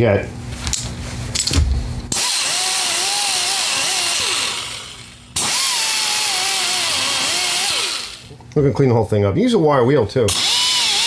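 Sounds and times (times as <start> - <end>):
cordless drill running: 2.1 - 8.3, 10.3 - 11.0.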